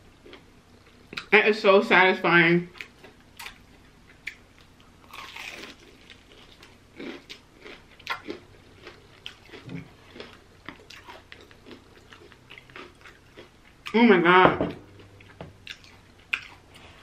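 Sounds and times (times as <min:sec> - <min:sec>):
crunchy chewing: 0:02.8 - 0:14.0, 0:15.0 - 0:16.9.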